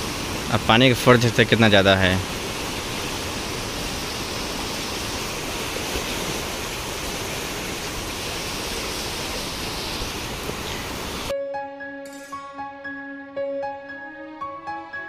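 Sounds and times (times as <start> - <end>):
river current rushing: 0.0 - 11.3.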